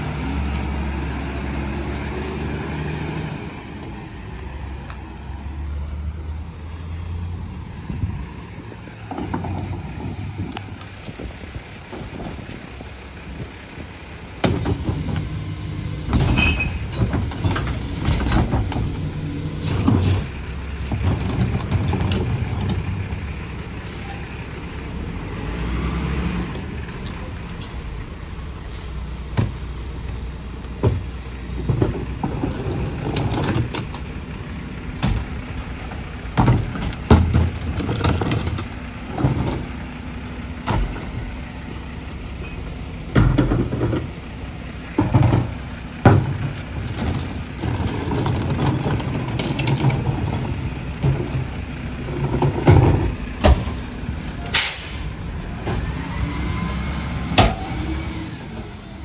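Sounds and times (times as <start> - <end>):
diesel engine running: 0.0 - 59.0
trash carts banging on hopper: 14.4 - 23.2, 30.8 - 41.4, 42.4 - 59.0.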